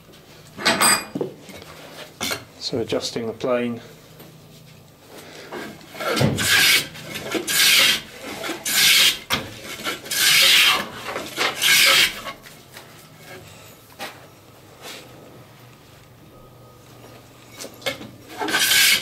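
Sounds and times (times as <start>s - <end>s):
plane blade shaving wood: 5.8s - 12.4s, 18.3s - 19.0s.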